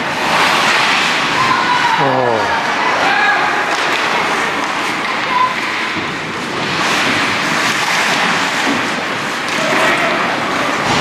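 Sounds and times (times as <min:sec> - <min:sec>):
ice rink noise hiss: 0:00.0 - 0:11.0.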